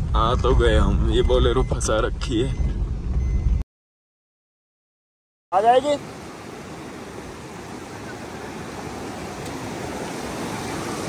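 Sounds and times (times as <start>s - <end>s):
stream water rushing: 5.6s - 11.0s.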